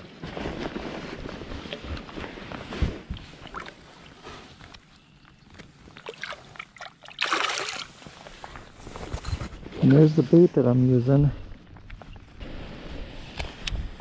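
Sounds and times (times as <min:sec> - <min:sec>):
water splash: 0:06.0 - 0:08.0.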